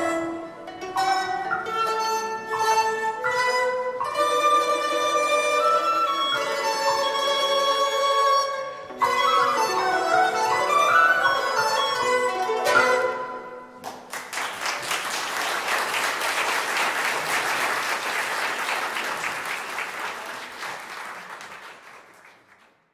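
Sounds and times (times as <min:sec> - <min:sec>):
traditional string ensemble playing: 0:00.0 - 0:20.9
audience applause: 0:13.8 - 0:22.8.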